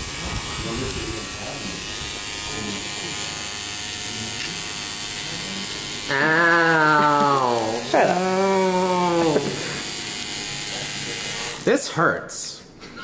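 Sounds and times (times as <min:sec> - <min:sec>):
tattoo machine buzzing: 0:00.0 - 0:11.9
long drawn-out human voice: 0:05.4 - 0:09.6.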